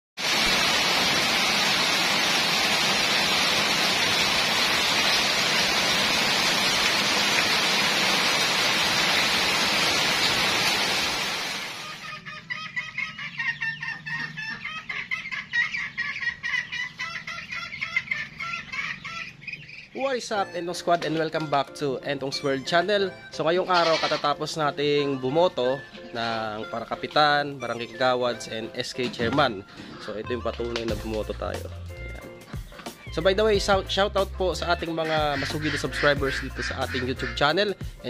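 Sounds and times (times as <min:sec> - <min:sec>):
heavy rain pouring: 0:00.2 - 0:12.0
poultry peeping and clucking: 0:11.8 - 0:21.6, 0:23.6 - 0:27.0, 0:32.4 - 0:33.1, 0:35.0 - 0:37.4.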